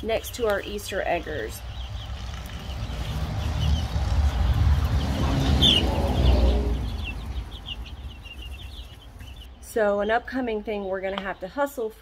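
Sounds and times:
chicks peeping: 0:00.0 - 0:11.6
low rumble: 0:01.0 - 0:09.5.

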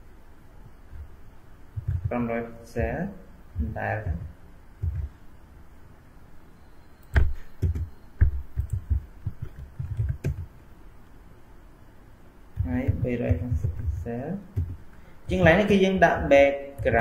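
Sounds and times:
typing on a computer keyboard: 0:01.8 - 0:02.1, 0:03.6 - 0:05.1, 0:07.0 - 0:10.5, 0:12.6 - 0:14.0, 0:14.6 - 0:15.7.

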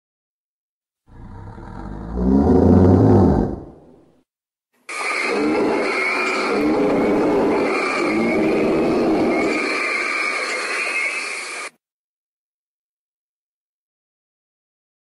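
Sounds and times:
dinosaur call: 0:01.1 - 0:04.0, 0:05.1 - 0:09.8.

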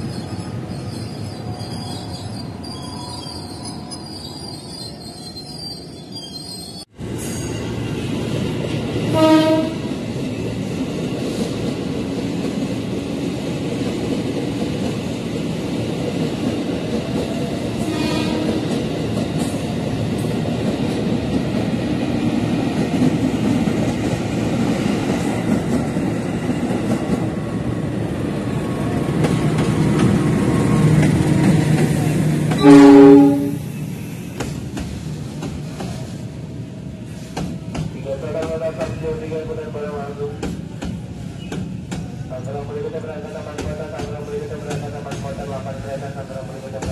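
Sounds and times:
freight train rumbling past: 0:00.0 - 0:46.9
train horn blasts: 0:09.1 - 0:09.8, 0:17.8 - 0:18.6, 0:32.6 - 0:33.7.

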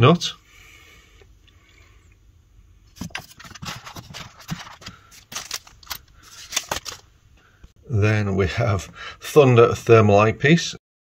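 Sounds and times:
plastic wrapping rustling: 0:03.0 - 0:07.1
metal part scraping and clicking: 0:03.2 - 0:07.0.

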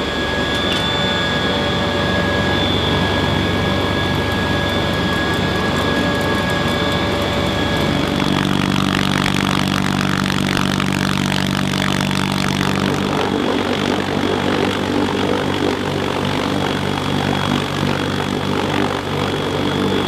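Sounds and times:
helicopter cabin drone: 0:00.0 - 0:20.0.

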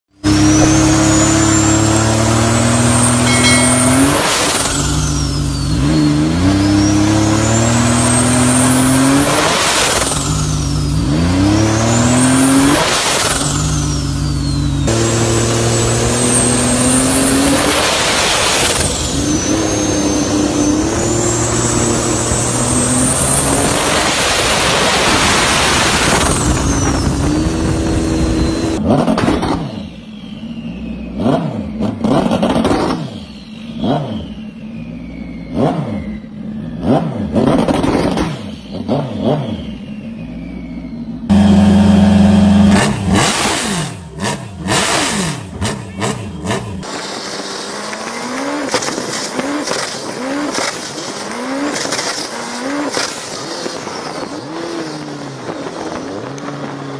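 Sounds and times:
jet ski engine revving: 0:00.2 - 0:29.1, 0:41.3 - 0:52.8.

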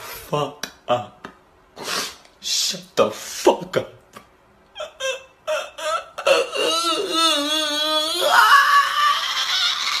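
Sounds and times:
man sobbing: 0:04.7 - 0:10.0
man wailing: 0:04.8 - 0:10.0.

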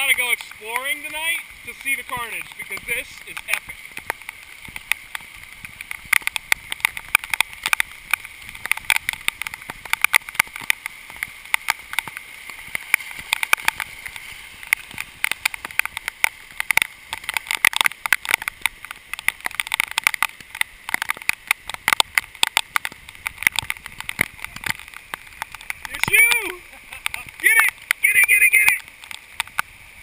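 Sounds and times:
heavy rain falling: 0:00.0 - 0:30.0
raindrops striking camera: 0:00.0 - 0:30.0.

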